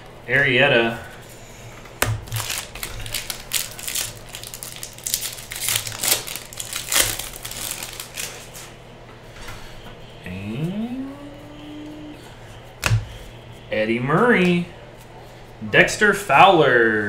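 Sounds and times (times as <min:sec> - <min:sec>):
foil wrapper crinkling: 0:02.1 - 0:08.7.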